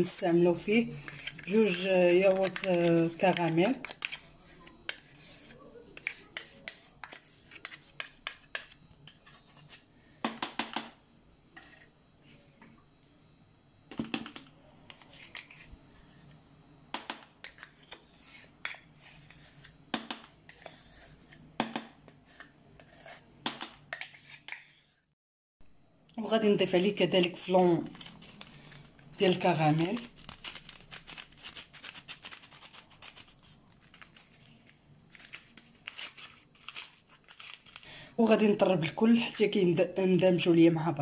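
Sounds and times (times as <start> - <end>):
plastic cups clicking and scraping: 0.0 - 10.9, 13.9 - 16.4, 17.0 - 24.9, 26.8 - 37.9.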